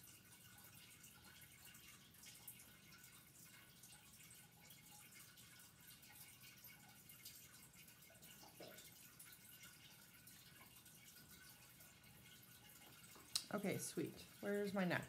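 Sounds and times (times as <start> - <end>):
soft ticks: 12.9 - 13.7.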